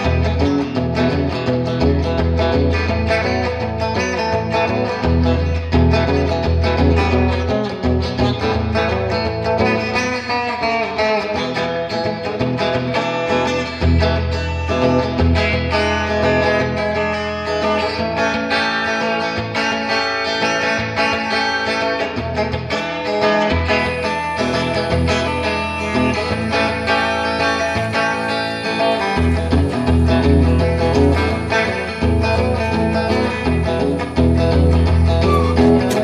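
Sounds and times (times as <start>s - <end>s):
country acoustic guitar strumming: 0.0s - 36.0s
bass line: 23.5s - 36.0s.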